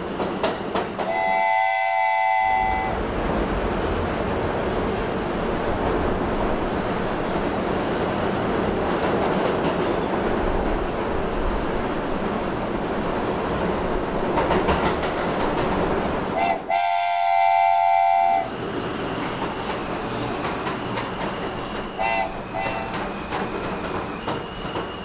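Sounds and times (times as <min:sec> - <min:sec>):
train rumbling: 0:00.0 - 0:25.0
train horn: 0:01.0 - 0:03.0, 0:16.4 - 0:18.5, 0:22.0 - 0:23.1.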